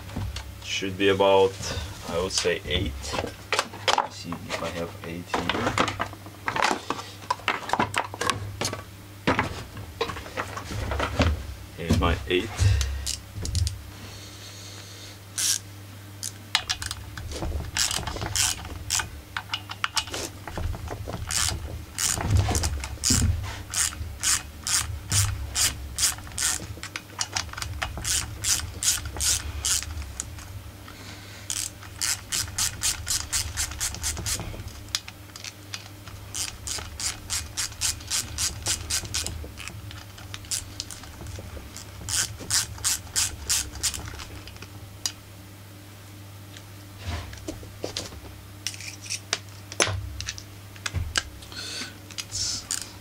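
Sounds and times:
ratchet wrench clicking: 15.4s - 15.6s, 17.8s - 20.0s, 21.3s - 22.2s, 23.0s - 26.6s, 27.2s - 29.9s, 31.5s - 34.4s, 36.3s - 39.3s, 42.1s - 44.0s.

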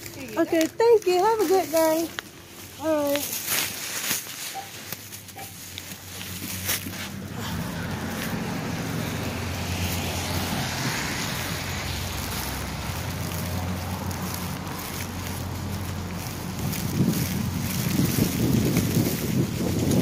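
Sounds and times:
rushing air on microphone: 5.3s - 20.0s.

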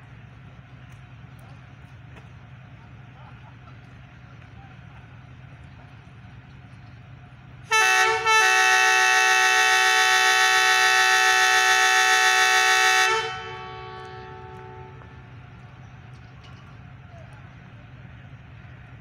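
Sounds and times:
locomotive air horn blasts: 7.7s - 15.4s.

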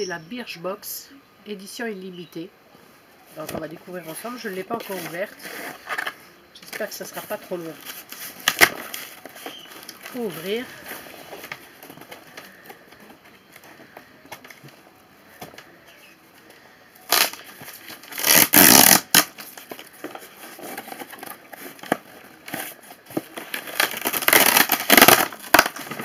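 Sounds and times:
packaging tearing and rustling: 7.2s - 14.7s, 17.0s - 26.0s.

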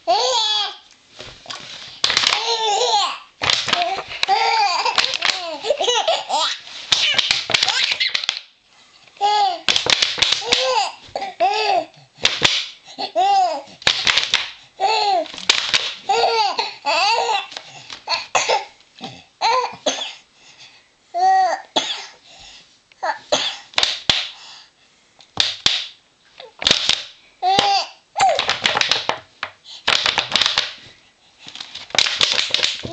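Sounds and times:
plastic bottle crackling: 1.4s - 2.5s, 3.4s - 6.0s, 6.8s - 8.4s, 15.3s - 16.0s, 26.6s - 29.3s, 29.9s - 30.8s, 31.6s - 32.9s
baby giggling and squealing: 2.4s - 8.3s.

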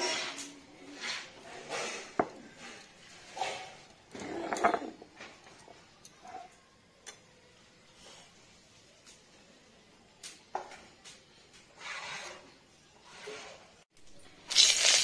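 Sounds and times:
stone roller grinding on stone slab: 0.0s - 5.4s, 11.8s - 13.8s
faint scrapes and ticks: 0.0s - 7.2s, 11.5s - 13.8s.

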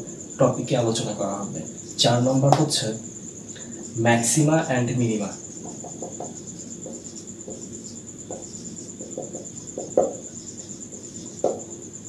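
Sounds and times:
cricket trilling: 0.0s - 12.0s
marker taps: 5.6s - 7.7s, 8.3s - 10.2s, 10.9s - 11.7s
marker writing on whiteboard: 5.6s - 11.7s.

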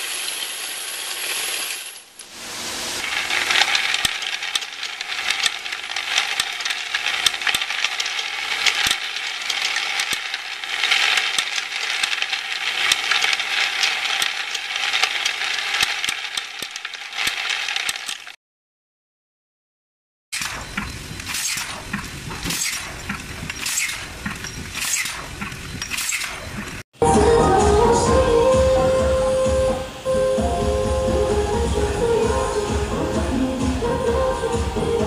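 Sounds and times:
metal parts clattering: 0.0s - 2.2s, 3.0s - 18.4s, 20.4s - 26.8s.

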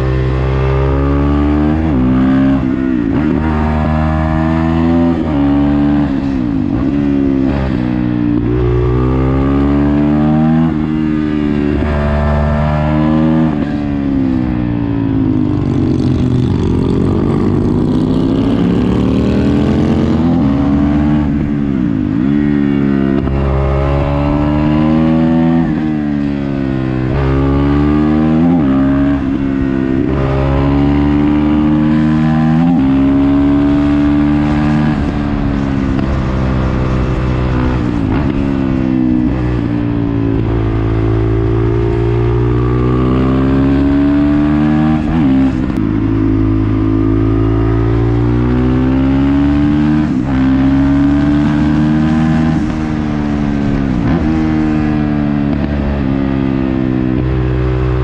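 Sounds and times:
motorcycle engine shifting gears: 0.0s - 58.0s
wind rush: 34.4s - 41.5s.

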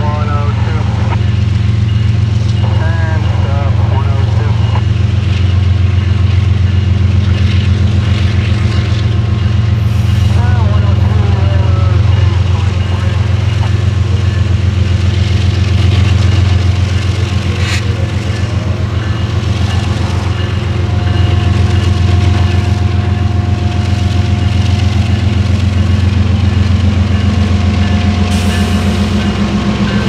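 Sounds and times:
diesel locomotive engine throbbing: 0.0s - 30.0s
wheel and rail hiss: 9.8s - 14.4s, 28.2s - 30.0s.

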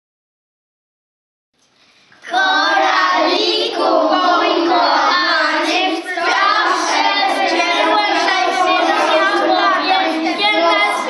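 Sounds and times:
children singing together: 2.2s - 11.0s.

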